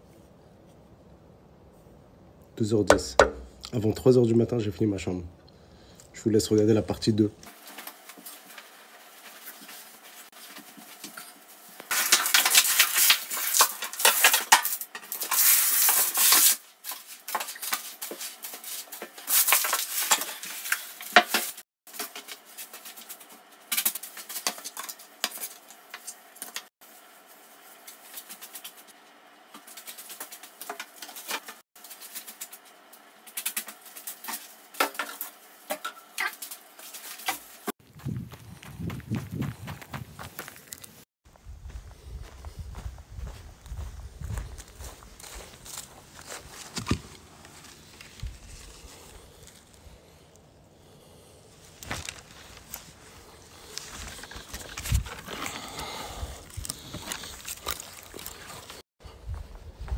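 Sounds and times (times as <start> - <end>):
sand pouring onto a sheet: 15.2 - 20.9.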